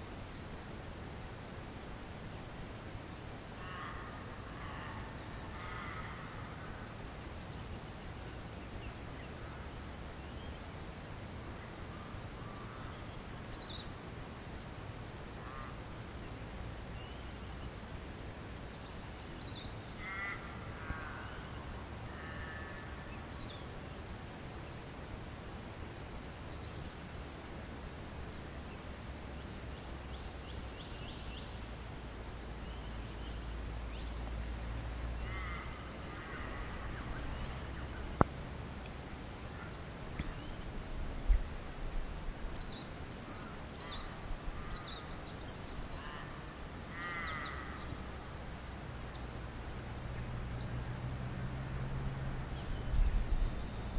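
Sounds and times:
low wind rumble: 0:00.0 - 0:53.9
birds chirping: 0:35.1 - 0:48.2
harsh loud bird calls: 0:35.2 - 0:38.3, 0:43.3 - 0:48.0.

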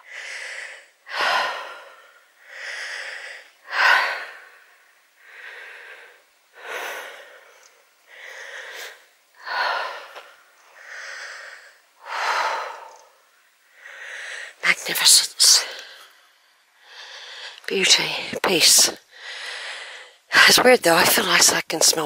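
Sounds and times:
person breathing hard: 0:00.0 - 0:14.6, 0:16.8 - 0:17.6, 0:19.0 - 0:20.2.

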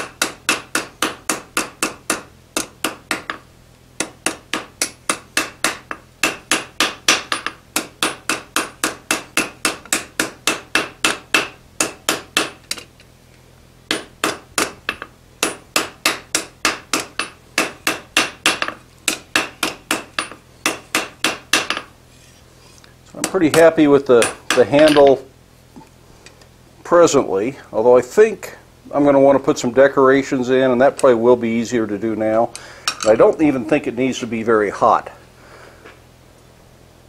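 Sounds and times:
hammer striking steel on anvil: 0:00.0 - 0:03.4, 0:04.0 - 0:12.8, 0:13.9 - 0:21.9, 0:23.2 - 0:25.2.

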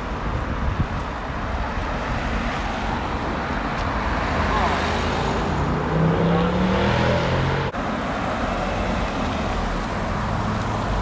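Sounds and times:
car driving past: 0:04.0 - 0:07.8.

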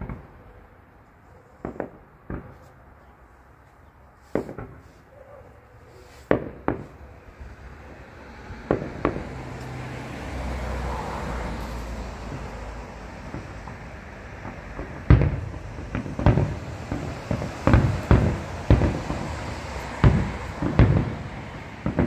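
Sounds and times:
fireworks bangs: 0:00.0 - 0:00.4, 0:01.6 - 0:02.9, 0:04.2 - 0:05.1, 0:06.0 - 0:22.0.

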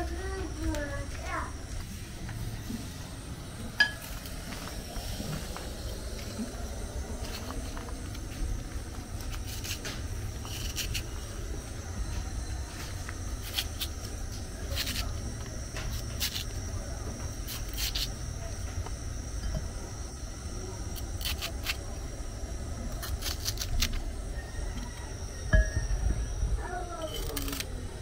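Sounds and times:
knife slicing okra: 0:09.2 - 0:11.1, 0:14.7 - 0:15.1, 0:15.9 - 0:16.5, 0:17.5 - 0:18.1, 0:21.0 - 0:21.8, 0:23.0 - 0:24.0.

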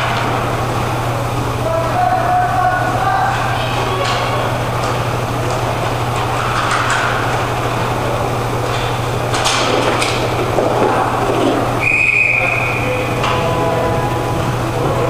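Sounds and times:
steady low hum: 0:00.0 - 0:15.0
hockey stick clacks: 0:08.6 - 0:12.6.

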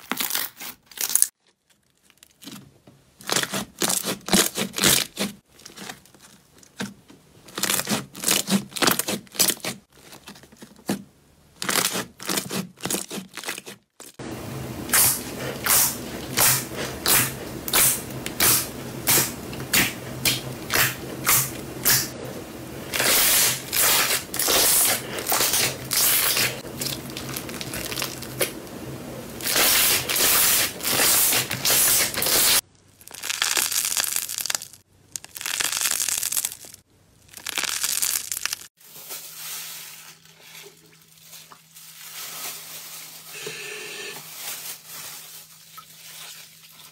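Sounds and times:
slime crackling and popping: 0:23.0 - 0:28.5, 0:29.4 - 0:38.7.

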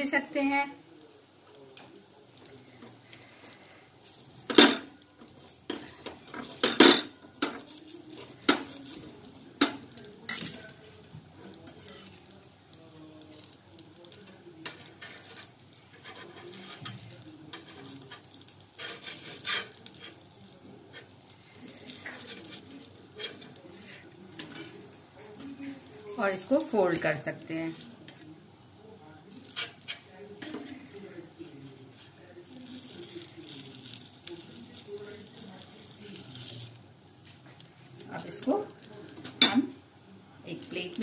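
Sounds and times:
faint sizzling: 0:00.0 - 0:41.0
metal clicks and scrapes on pan: 0:01.8 - 0:12.3, 0:13.3 - 0:24.8, 0:29.3 - 0:31.1, 0:32.6 - 0:39.8.

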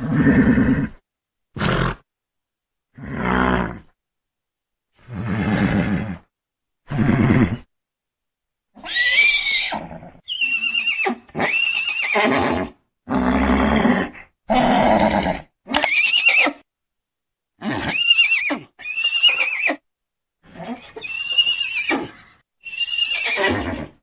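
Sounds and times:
horses whinnying and neighing: 0:08.8 - 0:16.6, 0:17.6 - 0:19.8, 0:20.6 - 0:24.0.

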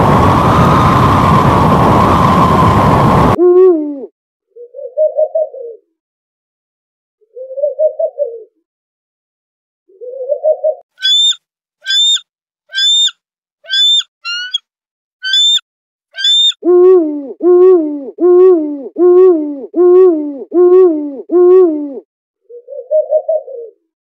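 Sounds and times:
eagle piping chirps: 0:11.0 - 0:13.1, 0:13.7 - 0:14.6, 0:15.2 - 0:15.6, 0:16.2 - 0:16.6
owl hooting: 0:11.0 - 0:13.1, 0:13.7 - 0:14.6, 0:15.2 - 0:15.6, 0:16.2 - 0:22.0.

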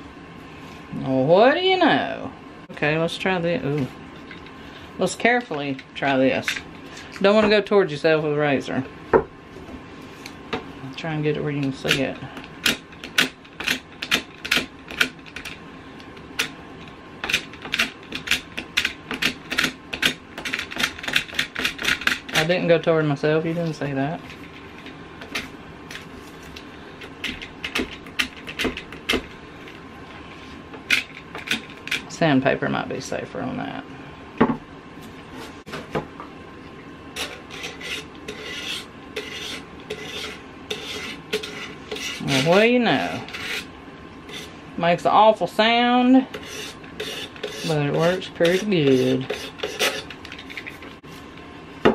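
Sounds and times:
razor blade scraping painted wood: 0:37.2 - 0:44.6, 0:46.3 - 0:50.9.

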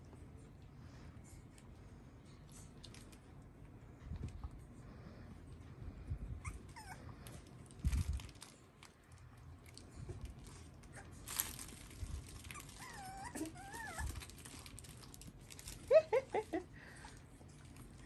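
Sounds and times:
puppies whimpering: 0:06.4 - 0:07.2, 0:12.5 - 0:14.2
puppies scuffling on bedding: 0:10.0 - 0:15.9.

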